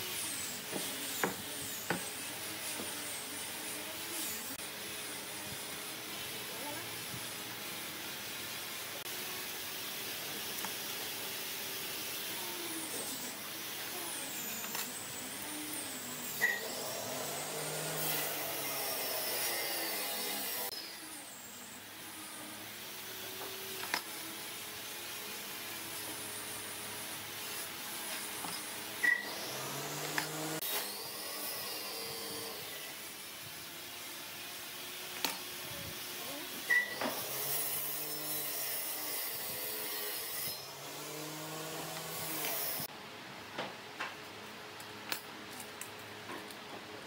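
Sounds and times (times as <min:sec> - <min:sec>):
tool rasping wood: 0:00.0 - 0:04.6.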